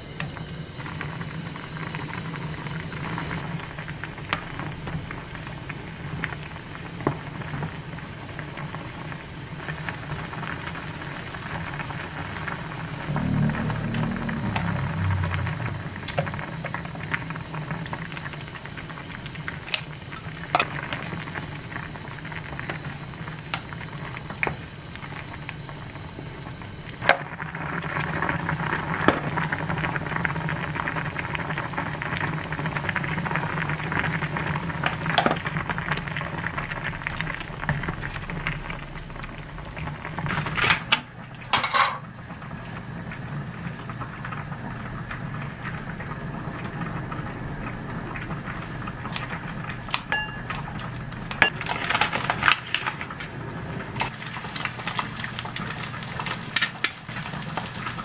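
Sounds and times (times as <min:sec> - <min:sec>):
steady low hum: 0:00.0 - 0:56.4
stew bubbling in a pan: 0:00.0 - 0:58.0
kitchen utensils clattering: 0:41.6 - 0:42.0.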